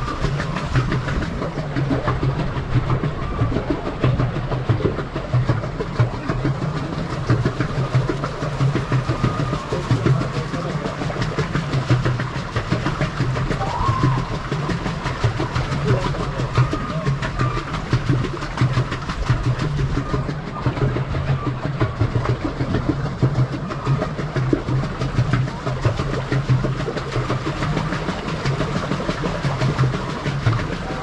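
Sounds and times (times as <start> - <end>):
steady low hum: 0.0 - 24.0
paddle wheel splashing: 0.0 - 31.0
rapid knocking and rattling: 0.0 - 31.0.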